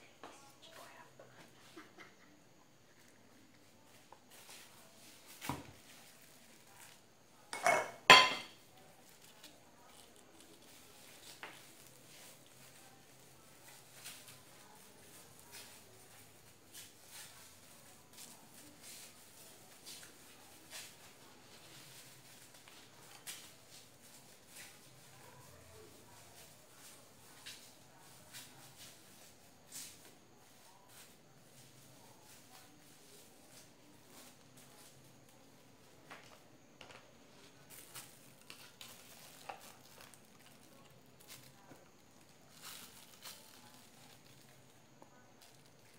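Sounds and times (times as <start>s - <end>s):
plastic bag crinkling: 37.6s - 44.7s.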